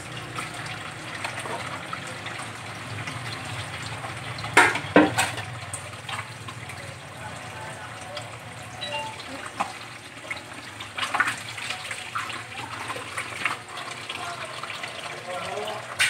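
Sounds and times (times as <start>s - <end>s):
water splashing in metal sink: 0.0s - 7.0s, 8.2s - 16.0s
fish knocking against metal sink: 4.5s - 5.4s.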